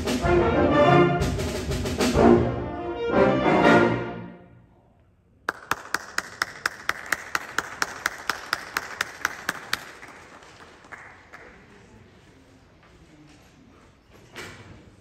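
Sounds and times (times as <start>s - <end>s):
audience applauding: 5.5s - 12.1s.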